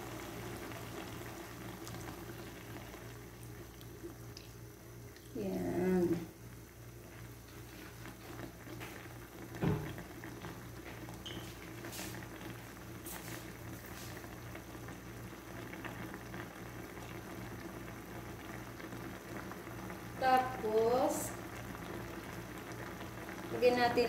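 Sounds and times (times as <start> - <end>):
sauce bubbling and popping: 0.0 - 5.4, 6.3 - 20.6, 21.3 - 23.6
low steady hum: 0.0 - 11.4.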